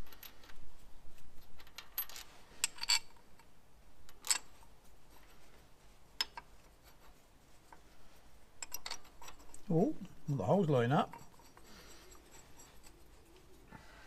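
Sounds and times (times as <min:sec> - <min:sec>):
steel bracket clinking on bolts: 0:08.6 - 0:13.0.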